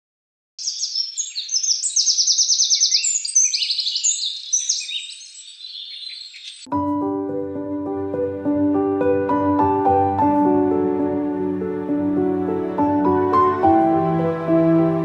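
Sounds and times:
songbirds chirping and trilling: 0:00.6 - 0:06.7.

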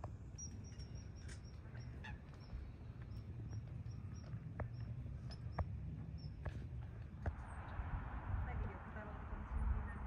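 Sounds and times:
low steady rumble: 0:00.0 - 0:10.0
water birds calling: 0:00.3 - 0:06.4.

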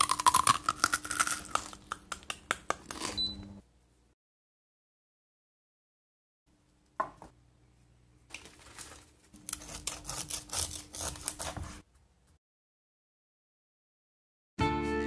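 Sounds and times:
knife slicing crunchy crackling: 0:09.4 - 0:11.8.

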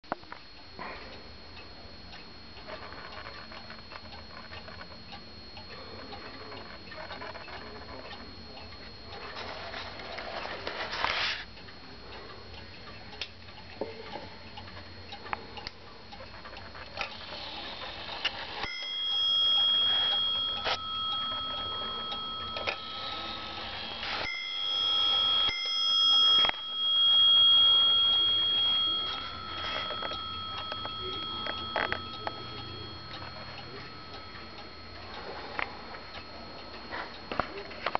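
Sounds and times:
wall clock ticking: 0:00.1 - 0:10.7, 0:11.5 - 0:37.9
clock bell striking: 0:17.7 - 0:37.9.

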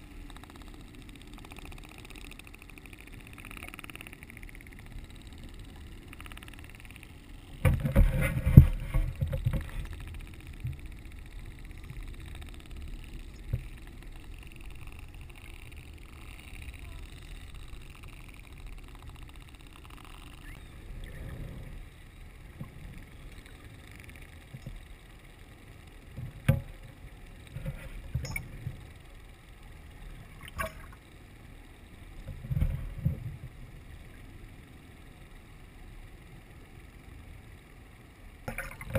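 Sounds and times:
sharp clicks: 0:00.1 - 0:07.7, 0:09.0 - 0:20.7
underwater water rushing: 0:05.4 - 0:24.8.

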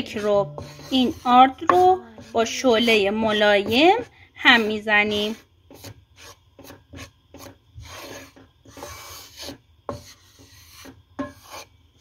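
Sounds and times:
spatula knocking on pan: 0:00.0 - 0:06.0
spatula scraping flour in pan: 0:00.0 - 0:11.7.

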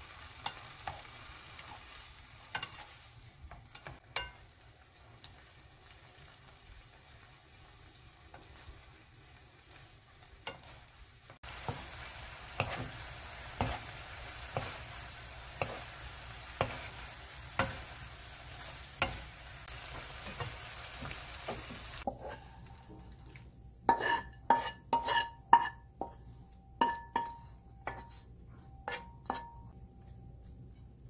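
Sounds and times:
fish sizzling in a wok: 0:00.0 - 0:23.2, 0:23.9 - 0:26.2
spatula scraping a wok: 0:00.1 - 0:04.4, 0:09.7 - 0:23.0, 0:23.8 - 0:31.0
wooden spatula stirring: 0:11.4 - 0:31.0.

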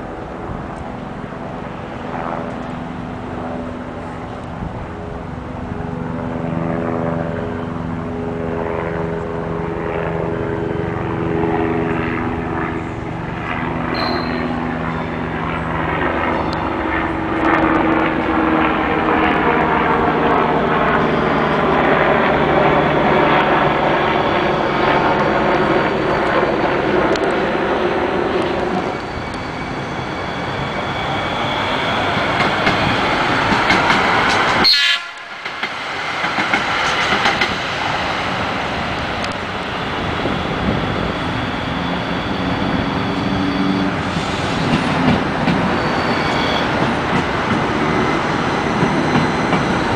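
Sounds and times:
wheels rumbling on rail: 0:07.3 - 0:49.9
train motor whine: 0:13.9 - 0:15.7, 0:23.7 - 0:49.9.

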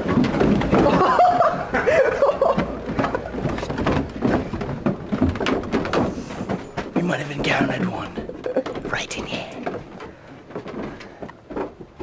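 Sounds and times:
knocks and shuffling: 0:00.0 - 0:12.0
young men laughing: 0:00.7 - 0:03.6, 0:08.2 - 0:08.9.

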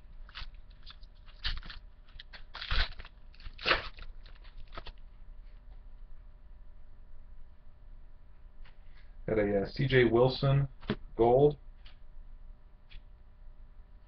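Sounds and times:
trading cards crinkling and rustling: 0:00.2 - 0:05.1.

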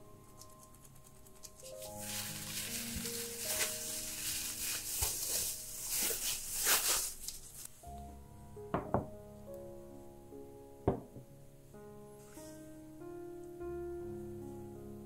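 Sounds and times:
background music: 0:00.0 - 0:15.0
cling film crinkling: 0:00.3 - 0:07.8
glass container knocking on wood: 0:08.8 - 0:09.1, 0:10.9 - 0:11.2.

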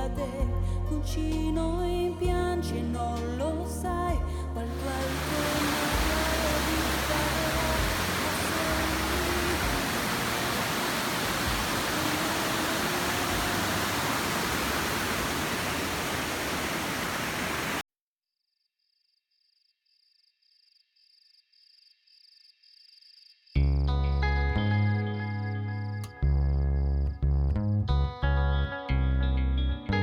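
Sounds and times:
waterfall rushing: 0:04.7 - 0:17.8.

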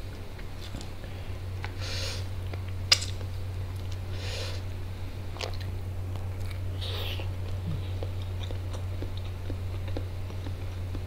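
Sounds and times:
steady low hum: 0:00.0 - 0:11.0
chewing noises: 0:05.4 - 0:11.0.

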